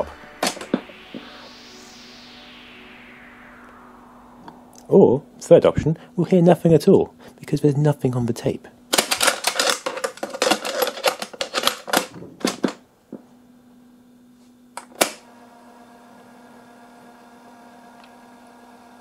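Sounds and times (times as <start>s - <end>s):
plastic clicks and rattles: 9.0s - 12.8s.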